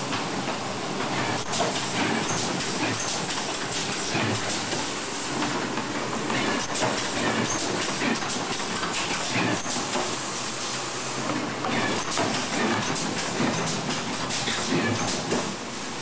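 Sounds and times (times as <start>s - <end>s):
hiss: 1.2s - 11.2s.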